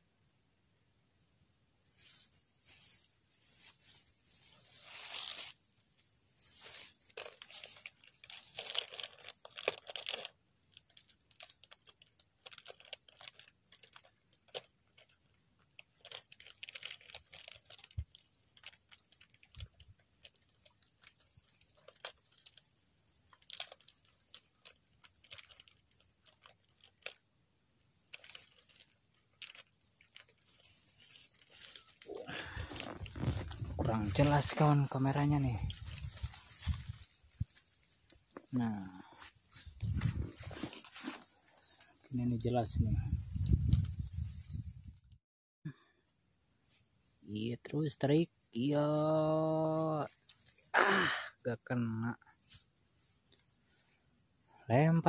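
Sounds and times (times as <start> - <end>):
rustling and crackling: 1.9 - 27.3, 28.0 - 44.9, 50.0 - 50.7.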